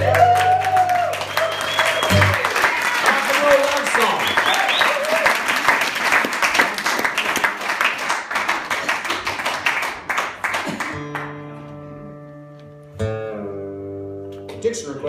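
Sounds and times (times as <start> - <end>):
audience applause: 0.0 - 11.4
acoustic guitar chord strummed: 10.9 - 14.8.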